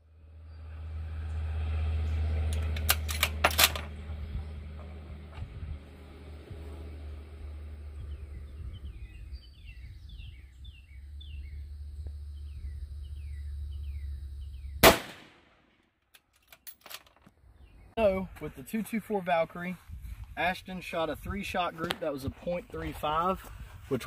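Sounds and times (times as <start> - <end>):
low rumble: 0.0 - 15.6
rifle shot: 14.8 - 15.8.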